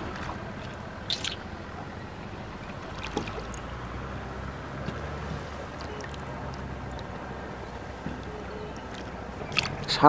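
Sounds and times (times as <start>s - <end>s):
wet net hauled in: 0.0s - 1.6s, 2.3s - 10.0s
small splashes: 0.0s - 10.0s
water dripping and lapping: 0.0s - 10.0s.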